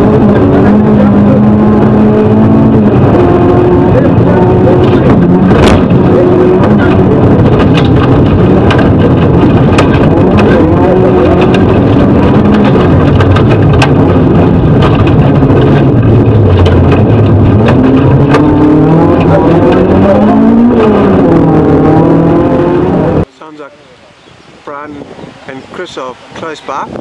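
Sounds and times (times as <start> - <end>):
rally car engine: 0.0 - 23.3
knocks over rough road: 5.0 - 21.2.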